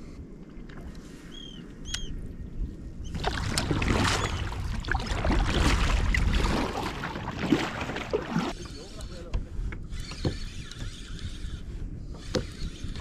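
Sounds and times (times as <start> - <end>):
paddle strokes splashing water: 3.1 - 8.6.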